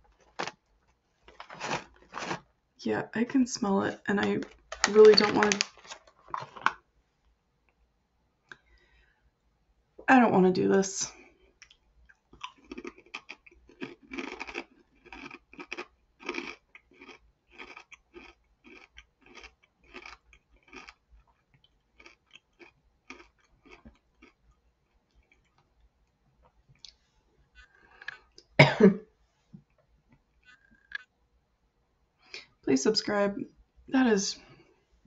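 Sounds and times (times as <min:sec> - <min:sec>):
crunchy chip chewing: 0:01.3 - 0:02.4, 0:11.6 - 0:25.7
person coughing: 0:28.6 - 0:29.0.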